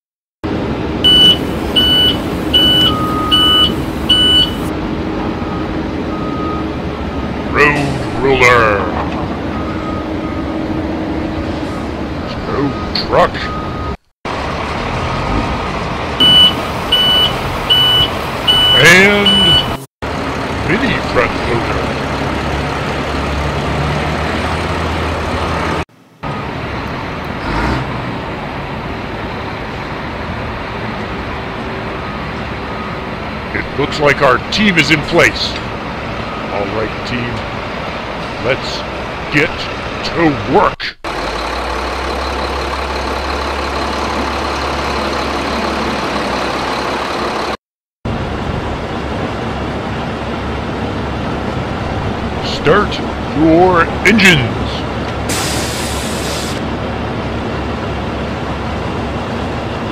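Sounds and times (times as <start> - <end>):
heavy vehicle engine rumbling: 0.4 - 59.9.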